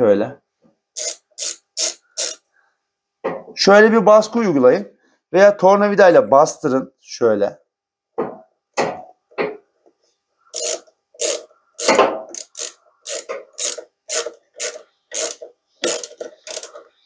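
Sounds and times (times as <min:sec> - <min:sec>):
ratchet wrench clicking: 0:01.0 - 0:02.4, 0:10.5 - 0:16.8.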